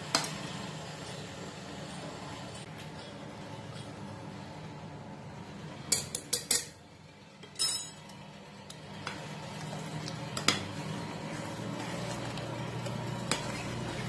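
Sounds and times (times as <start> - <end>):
ladle stirring thick curry: 9.1 - 14.0.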